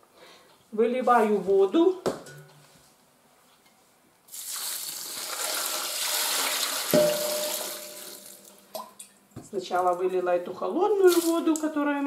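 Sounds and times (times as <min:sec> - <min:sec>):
water pouring into a metal pot: 0:04.3 - 0:08.6
knock with ringing tone: 0:07.0 - 0:07.6.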